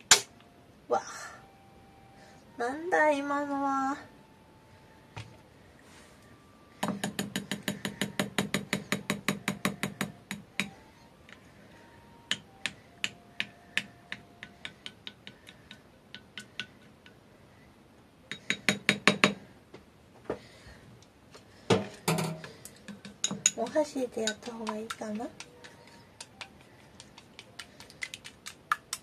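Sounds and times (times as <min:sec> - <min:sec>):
spoon clicking against bowl: 0:22.9 - 0:29.0.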